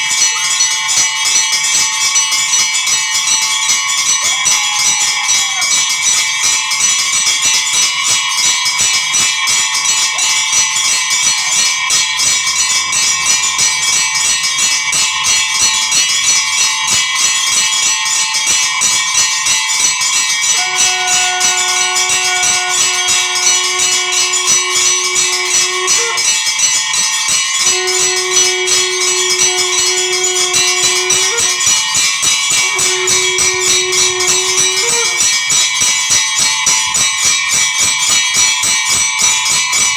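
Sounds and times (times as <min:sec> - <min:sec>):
bells ringing fast: 0:00.0 - 0:39.9
steady held tone: 0:20.4 - 0:36.4.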